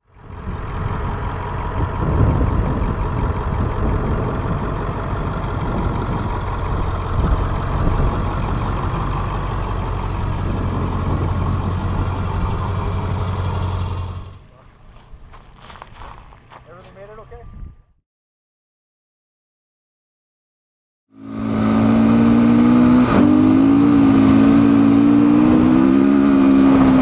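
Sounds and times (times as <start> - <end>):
truck engine idling: 0.0 - 15.6.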